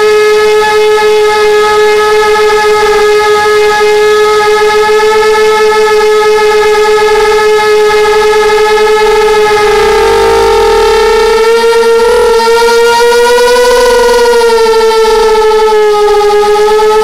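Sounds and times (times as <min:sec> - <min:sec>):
quadcopter motors whining: 0:07.2 - 0:17.0.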